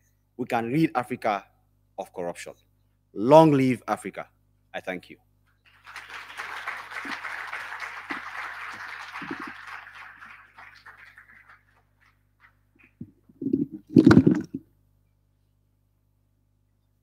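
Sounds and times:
audience applause: 5.7s - 13.0s
loud thumps: 13.4s - 14.6s.

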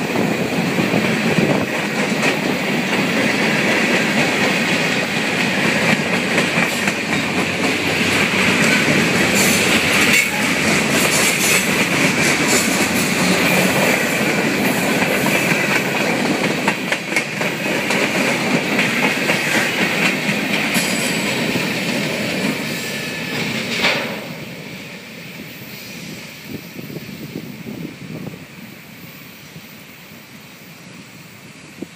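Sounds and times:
train wheels clattering over rail joints: 0.0s - 24.6s.

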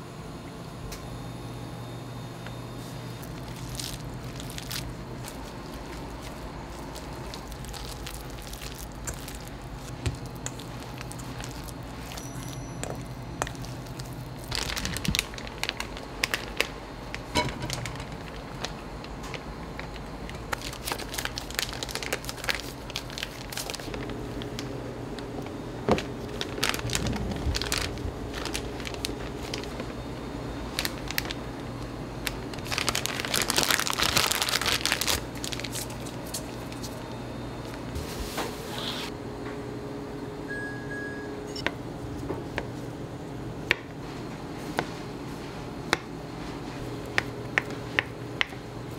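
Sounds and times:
steady low hum: 0.0s - 48.9s
plastic crinkling: 3.2s - 30.1s, 30.7s - 37.9s.

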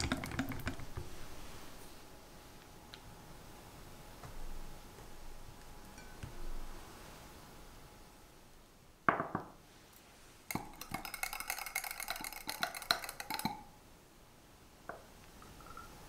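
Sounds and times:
whisk clinking against glass jar: 0.0s - 0.9s, 10.5s - 13.7s.

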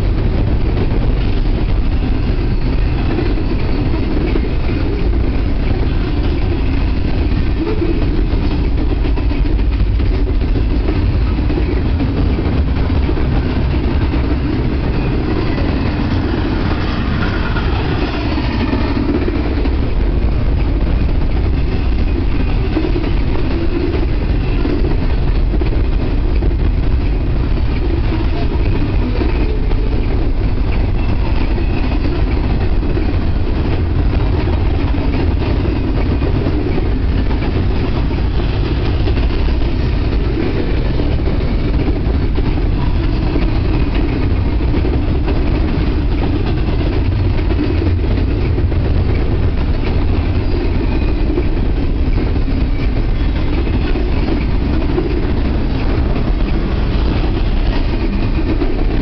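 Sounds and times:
steel wheels rolling on rails: 0.0s - 59.0s.

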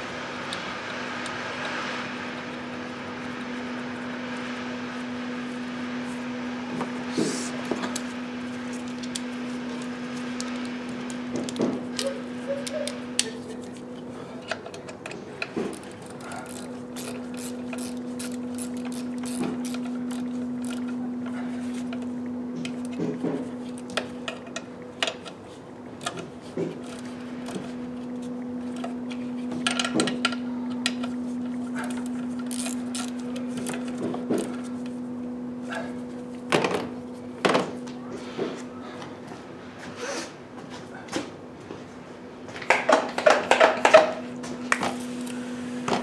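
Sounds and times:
steady low hum: 0.0s - 46.0s
ratchet clicking: 15.7s - 20.9s, 32.0s - 33.8s.

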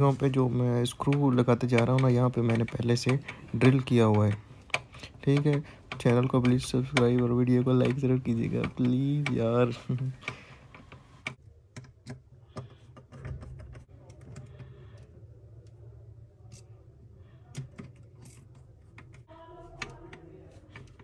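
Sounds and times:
screwdriver clicks and taps: 0.9s - 12.2s.

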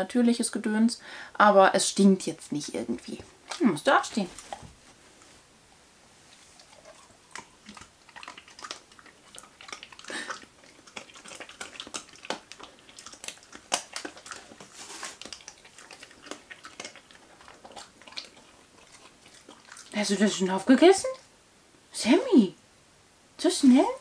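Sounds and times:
dog chewing crunchily: 2.4s - 5.3s, 6.3s - 20.4s.

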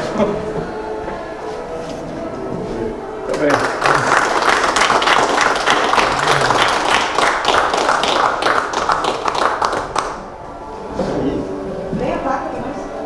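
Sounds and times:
people applauding: 3.3s - 10.3s.

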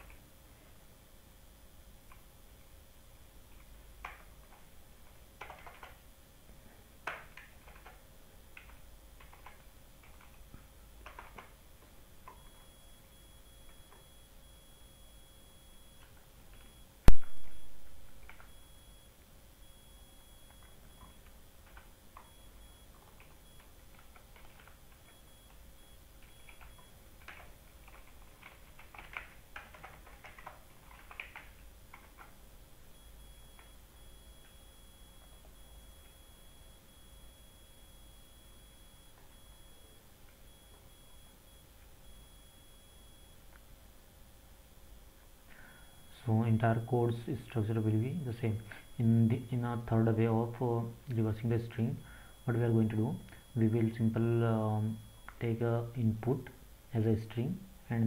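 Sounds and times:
computer keyboard clicks: 5.4s - 6.0s, 7.0s - 8.0s, 8.6s - 10.4s, 11.0s - 11.6s, 23.0s - 25.2s, 26.2s - 32.3s.

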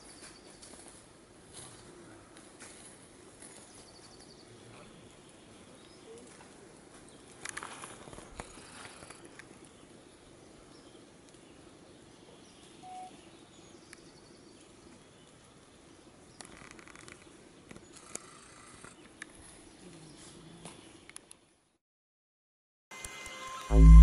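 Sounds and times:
crackling rustle: 0.0s - 11.9s, 13.6s - 21.4s
small clicks and rustles: 5.8s - 9.8s, 16.3s - 21.5s
short single tone: 23.2s - 24.0s.

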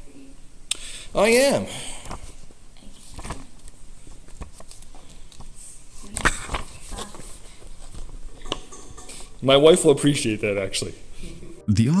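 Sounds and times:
paper rustling: 2.0s - 8.3s.

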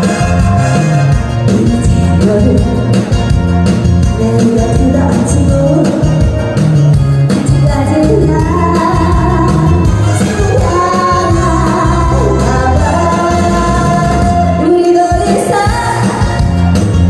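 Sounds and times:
loud backing track with beat: 0.0s - 17.0s
woman singing into a microphone: 1.5s - 2.9s, 4.2s - 6.2s, 7.4s - 16.4s.

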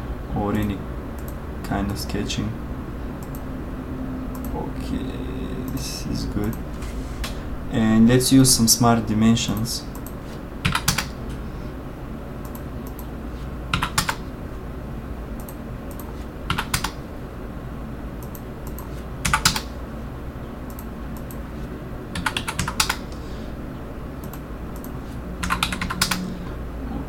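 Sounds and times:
low hum: 0.0s - 27.0s
computer keyboard typing: 3.2s - 3.5s, 4.3s - 4.6s, 9.5s - 11.2s, 13.7s - 14.2s, 15.4s - 17.0s, 18.2s - 19.7s, 22.1s - 23.2s, 24.2s - 26.3s.

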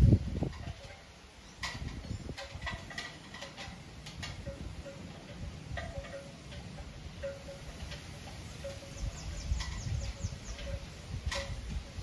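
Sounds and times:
wind rumbling on microphone: 0.0s - 12.0s
wind chimes tinkling: 0.2s - 12.0s.

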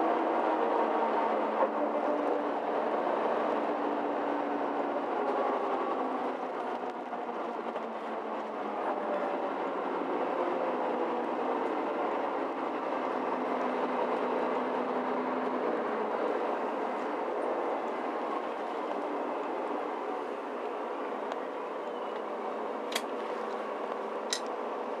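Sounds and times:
bus engine and rolling hum: 0.0s - 25.0s.

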